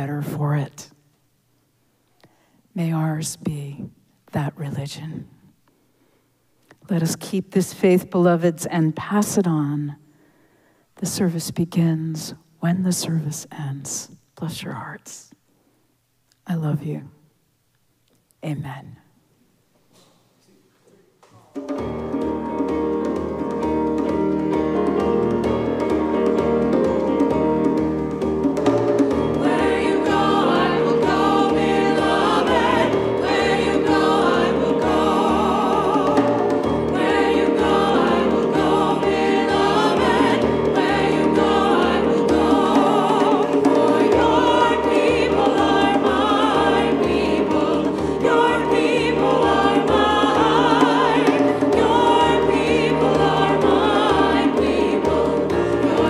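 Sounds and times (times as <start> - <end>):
piano: 21.4 - 56.0
church choir singing: 22.1 - 56.0.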